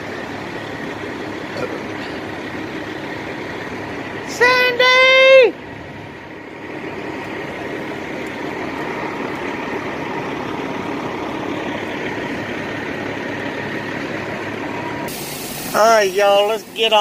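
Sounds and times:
diesel truck engines rumbling: 0.0s - 17.0s
truck idling: 0.0s - 17.0s
air hiss: 15.1s - 17.0s.

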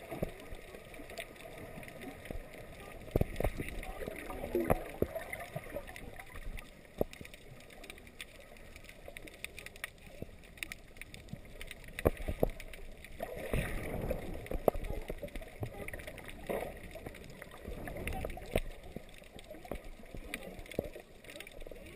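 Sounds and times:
sharp underwater clicks and crackles: 0.0s - 21.9s.

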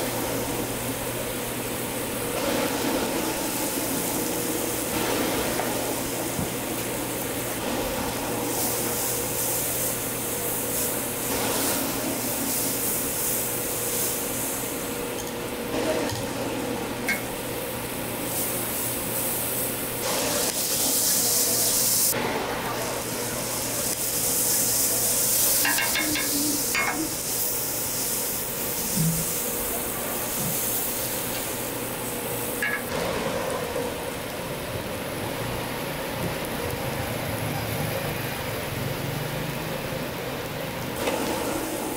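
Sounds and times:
food sizzling on griddle: 0.0s - 41.9s
metal spatula and tongs scraping: 25.6s - 27.2s.

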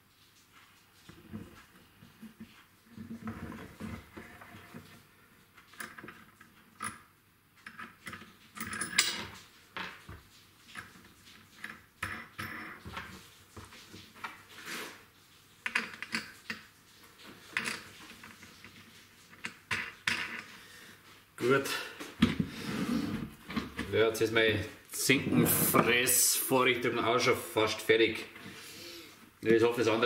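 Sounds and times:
parts clattering on workbench: 7.7s - 10.0s, 19.4s - 20.5s.

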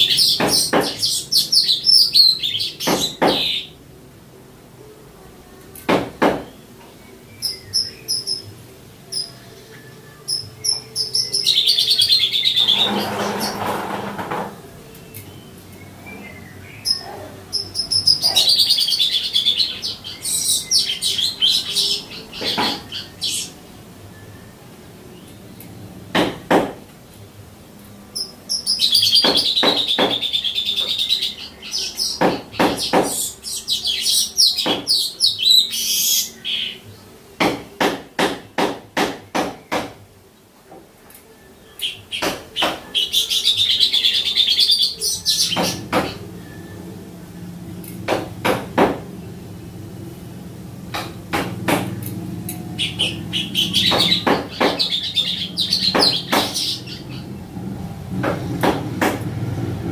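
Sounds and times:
bird singing chattering phrases: 0.0s - 3.8s, 6.2s - 26.0s, 28.1s - 37.2s, 41.4s - 48.4s, 51.2s - 57.6s.

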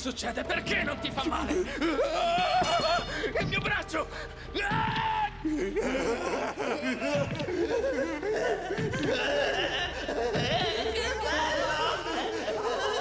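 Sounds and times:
man laughing hysterically: 5.5s - 13.0s.

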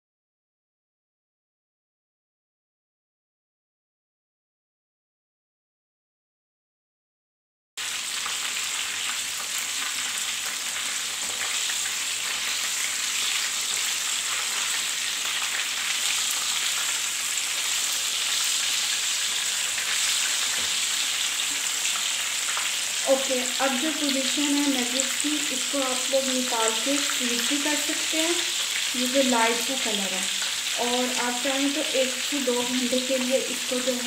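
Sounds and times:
food frying in hot oil: 7.8s - 34.0s.

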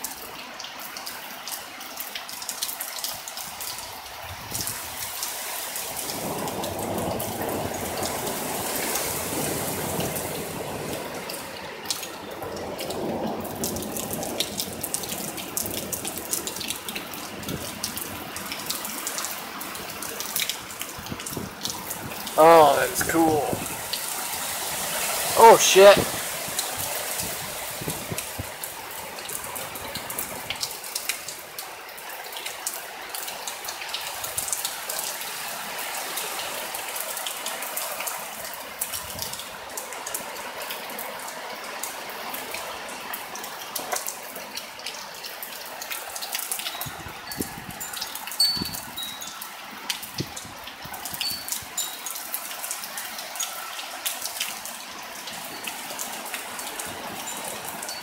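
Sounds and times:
close drips and splats: 0.0s - 58.0s
heavy rain pouring: 0.0s - 58.0s.

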